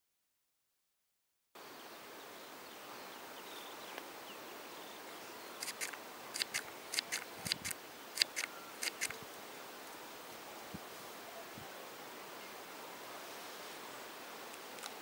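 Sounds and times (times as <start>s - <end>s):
faint outdoor hiss: 1.6s - 15.0s
woodpecker pecking on wire mesh: 5.6s - 9.2s.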